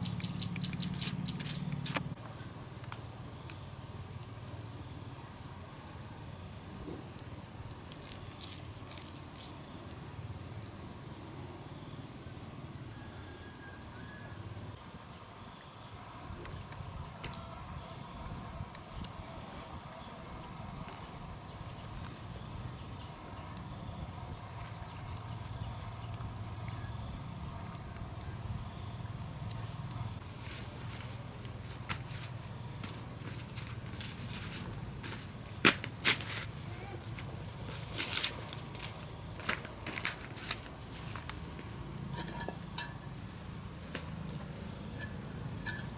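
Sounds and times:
insect chorus trilling: 0.0 - 45.9
low outdoor ambience: 0.0 - 45.9.

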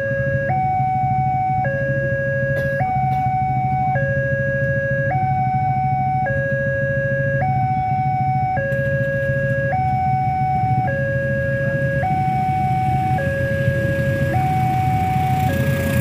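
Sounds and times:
level crossing two-tone alarm: 0.0 - 16.0.

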